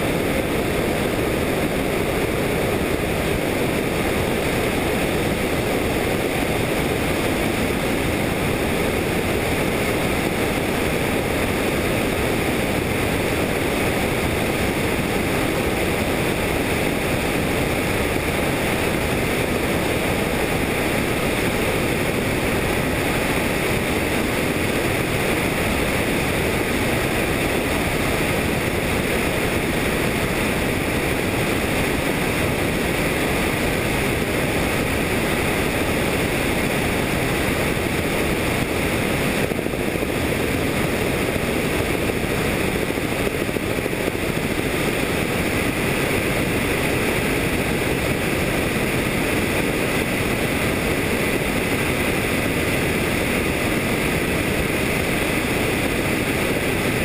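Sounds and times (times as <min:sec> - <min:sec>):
helicopter engine and rotor: 0:00.0 - 0:57.0
wind: 0:00.0 - 0:57.0.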